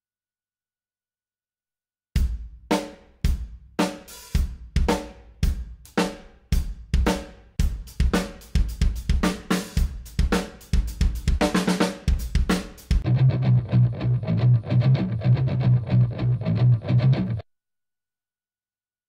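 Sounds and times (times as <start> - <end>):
heavy drum kit groove: 2.2 - 13.0.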